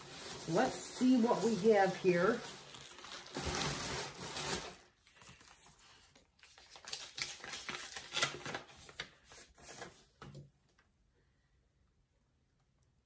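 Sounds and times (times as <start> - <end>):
packaging rustling and crinkling: 0.0 - 10.3.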